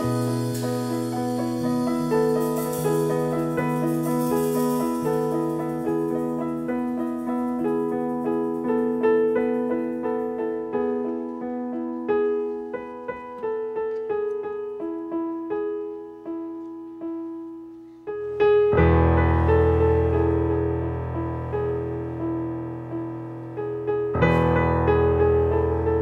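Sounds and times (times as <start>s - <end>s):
digital piano melody: 0.0s - 26.0s.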